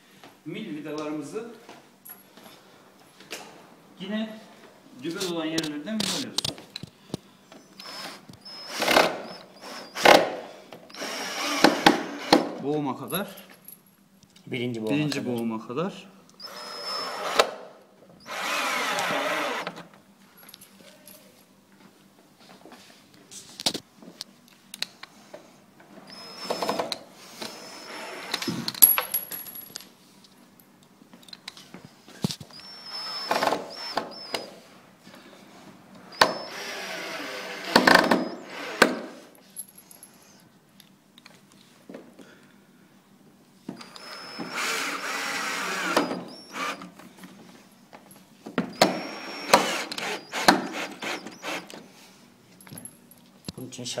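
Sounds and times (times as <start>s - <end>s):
cordless drill motor driving screw: 7.8s - 10.3s, 10.9s - 12.4s, 16.4s - 17.6s, 18.2s - 19.8s, 26.1s - 28.7s, 32.5s - 34.5s, 36.1s - 39.1s, 43.8s - 47.0s, 48.7s - 51.8s.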